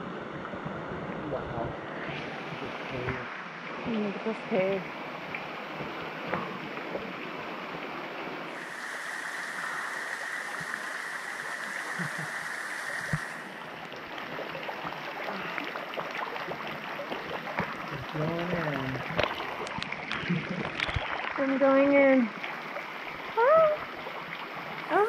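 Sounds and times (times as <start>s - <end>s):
water falling into a pool: 4.5s - 25.0s
small splashes: 14.2s - 21.6s.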